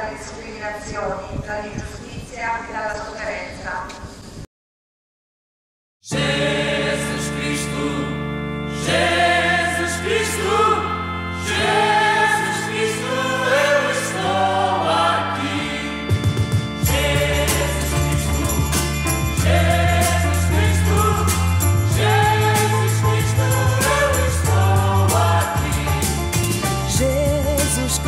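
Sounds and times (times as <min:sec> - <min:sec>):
group singing a hymn: 0:06.1 - 0:28.0
low held chords: 0:06.2 - 0:28.0.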